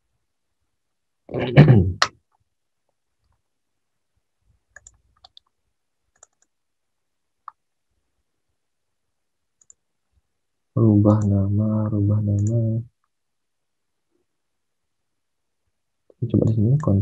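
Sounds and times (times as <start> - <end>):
computer mouse clicks: 4.7 - 6.6, 9.6 - 9.8, 12.4 - 13.2
keyboard clicks: 4.7 - 6.6, 9.6 - 9.8, 12.4 - 13.2.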